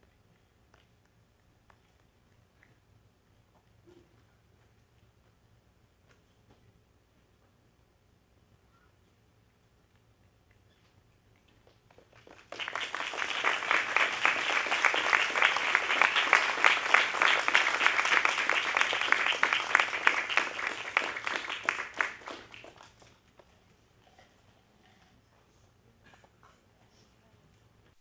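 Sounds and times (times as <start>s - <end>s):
audience applauding: 11.7s - 23.1s.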